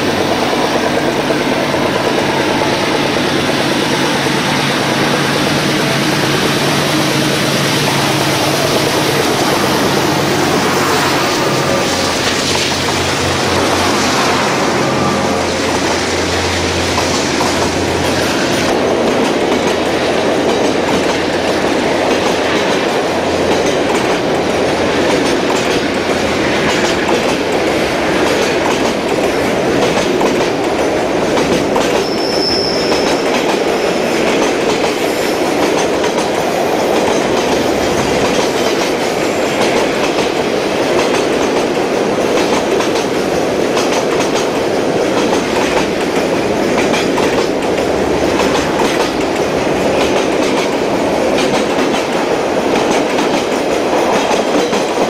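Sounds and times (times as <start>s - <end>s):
freight train rumbling past: 0.0s - 55.0s
wheels clacking over rail joints: 0.0s - 55.0s
high squeal: 2.2s - 18.7s, 31.9s - 34.0s.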